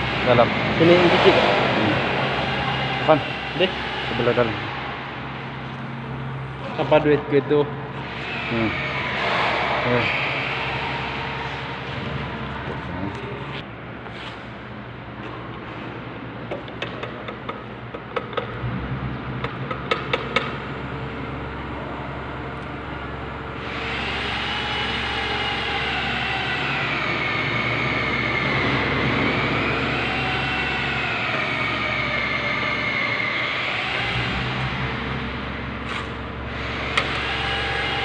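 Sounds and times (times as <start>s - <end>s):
paint roller squealing: 8.0s - 13.6s, 23.6s - 38.0s.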